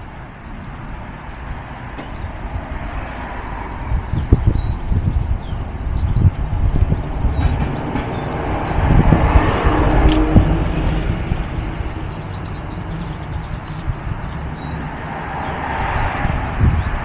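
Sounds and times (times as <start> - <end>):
wind rumbling on microphone: 0.0 - 17.0
small birds chirping: 3.4 - 9.8, 10.4 - 17.0.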